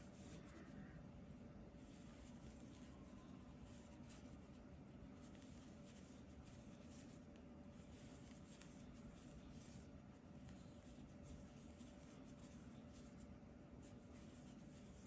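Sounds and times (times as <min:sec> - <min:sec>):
low room hum: 0:00.0 - 0:15.0
soft rustles of yarn: 0:00.0 - 0:15.0.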